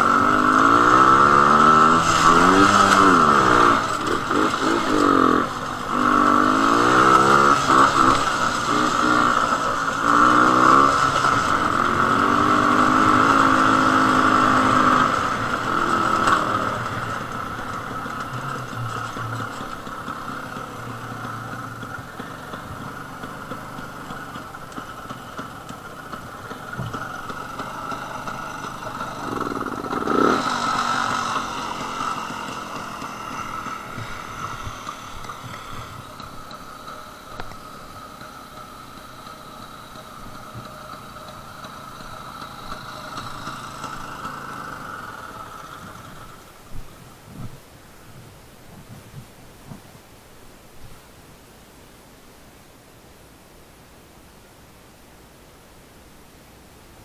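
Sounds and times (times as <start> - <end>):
motorcycle engine rev: 0.0 - 49.8
two-stroke motorcycle engine: 0.0 - 49.8.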